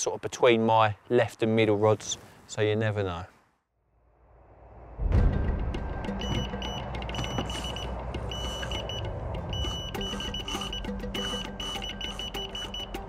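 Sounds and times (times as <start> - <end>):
bite alarm high beeps: 6.1 - 13.0
lower-pitched beeping: 6.1 - 13.0.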